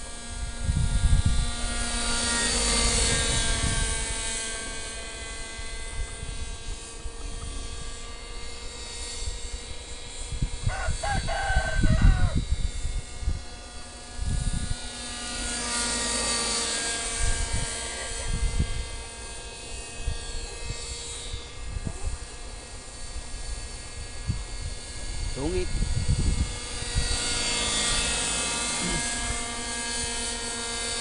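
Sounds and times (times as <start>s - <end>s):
model helicopter whine: 0.0s - 31.0s
rooster crowing: 10.6s - 12.5s.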